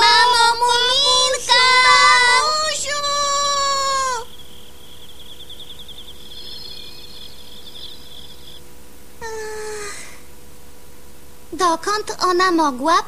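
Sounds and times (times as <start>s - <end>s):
person calling out: 0.0s - 4.3s, 9.2s - 10.2s
crickets trilling: 0.0s - 11.5s
short falling vocal sound: 9.2s - 10.2s.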